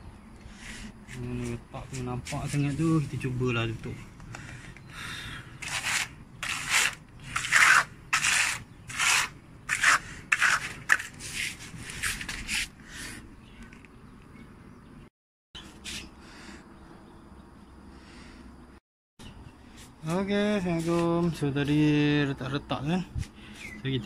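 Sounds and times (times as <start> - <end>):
plaster scraping on concrete: 5.5 - 12.8.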